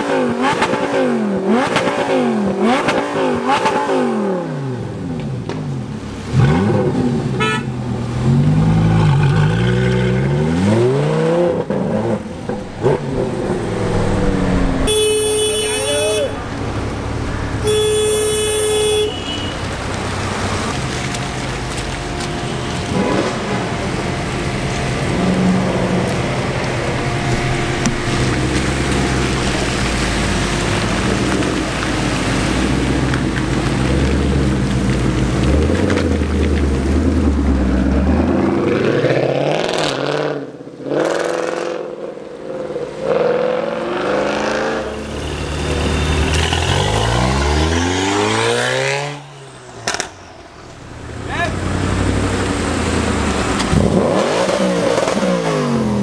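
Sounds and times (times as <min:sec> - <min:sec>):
car engine revving: 0:00.0 - 0:56.0
car engine idling: 0:12.2 - 0:32.2, 0:49.2 - 0:54.0.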